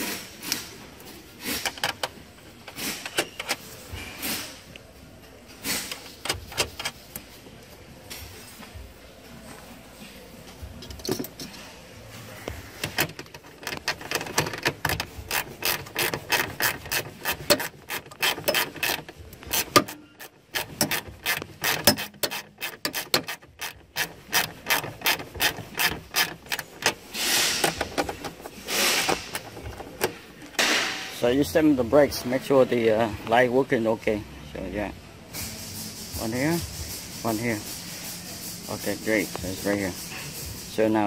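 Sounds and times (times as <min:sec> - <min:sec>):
socket ratchet clicking: 0:12.8 - 0:30.2
short scraping rustles: 0:24.0 - 0:30.3.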